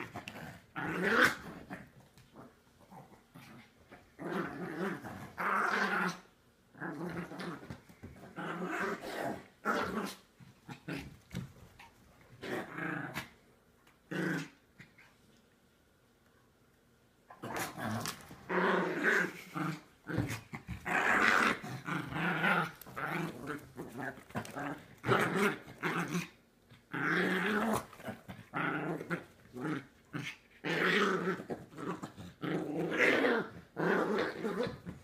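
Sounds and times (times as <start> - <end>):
dogs growling: 17.3 - 35.0.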